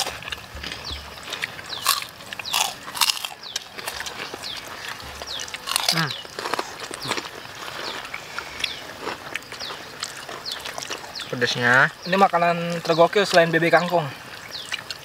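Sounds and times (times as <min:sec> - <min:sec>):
people chewing and lip-smacking: 0:00.0 - 0:15.0.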